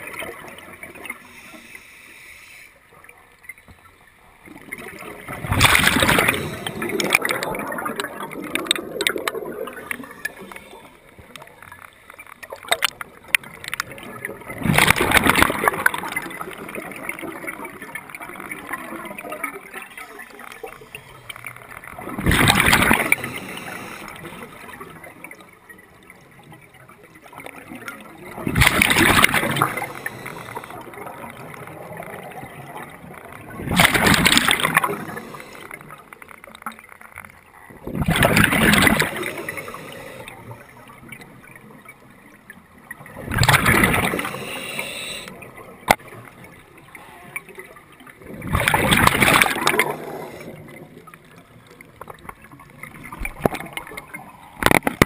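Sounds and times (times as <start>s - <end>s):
exhaled bubbles rushing: 4.4s - 11.9s, 12.5s - 25.5s, 26.2s - 36.0s, 37.6s - 41.8s, 42.8s - 46.6s, 47.5s - 55.0s
regulator hiss: 44.2s - 45.3s.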